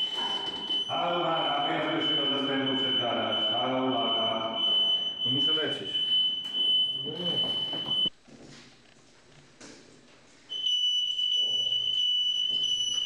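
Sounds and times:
high-pitched electronic alarm tone: 0.0 - 8.1, 10.5 - 13.0.

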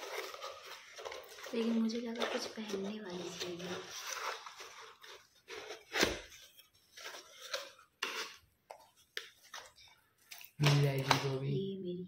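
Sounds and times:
rustles of gift wrapping: 0.0 - 11.6.

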